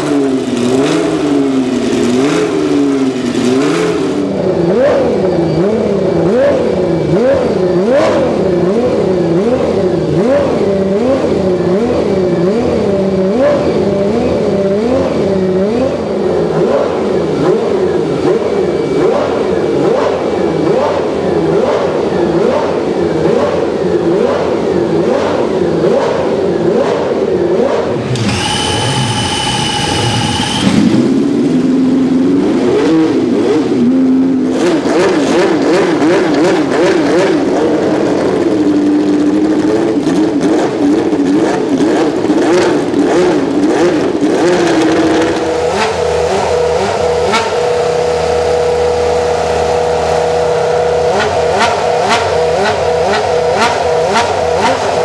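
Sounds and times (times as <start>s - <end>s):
racing engines revving: 0.0s - 55.0s
high steady whine: 28.1s - 32.6s.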